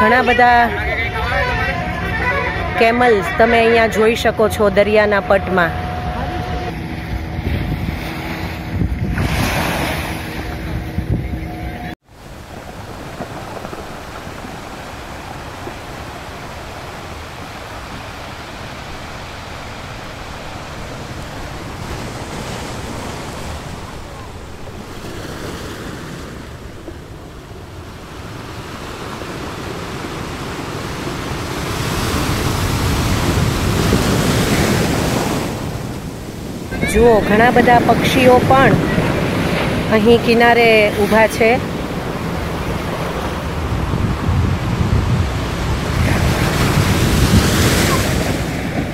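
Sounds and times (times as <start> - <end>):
wind on microphone: 0.0 - 25.6, 26.4 - 48.9
steady motor hum: 4.4 - 12.0
small waves washing onto shore: 6.7 - 10.7, 12.0 - 48.9.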